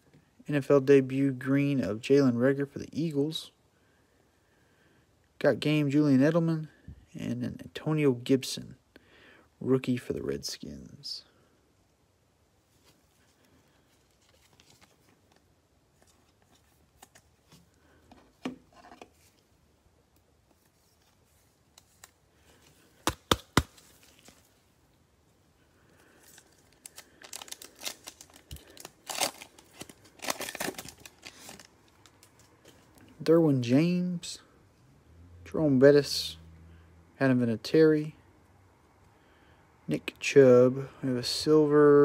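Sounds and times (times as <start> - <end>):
cellophane wrapper crinkling and tearing: 26.0 - 32.5.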